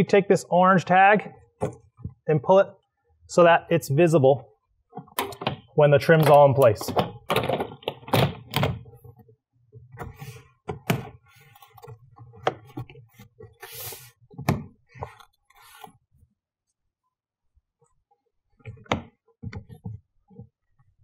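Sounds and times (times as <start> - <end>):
dull thunks and sharp clicks: 4.9 - 9.0.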